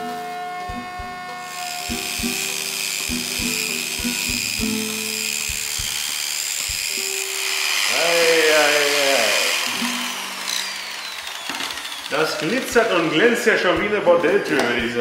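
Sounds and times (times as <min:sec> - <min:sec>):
background music with beat: 0:00.0 - 0:07.2, 0:13.1 - 0:15.0
angle grinder grinding steel: 0:00.0 - 0:15.0.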